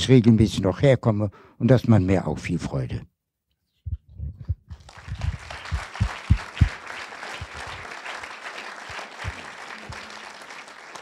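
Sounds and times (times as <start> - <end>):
microphone handling thumps: 3.9 - 6.7
audience applauding: 4.7 - 11.0.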